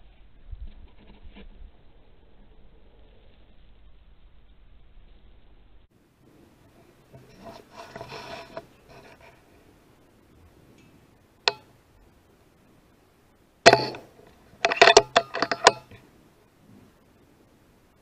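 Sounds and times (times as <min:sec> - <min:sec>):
faint rustling: 0:05.9 - 0:18.0
sharp clicks and knocks: 0:10.8 - 0:11.7, 0:13.6 - 0:16.0.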